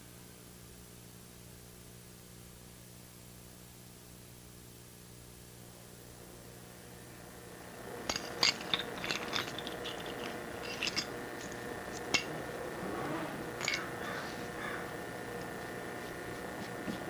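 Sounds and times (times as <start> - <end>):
faint hum: 0.0 - 17.0
mousetraps clicking: 7.8 - 17.0.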